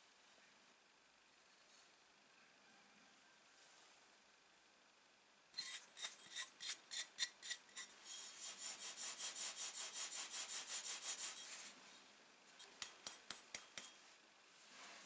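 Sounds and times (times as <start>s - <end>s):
axe blade rasping on palm: 5.6s - 11.6s, 12.6s - 14.0s.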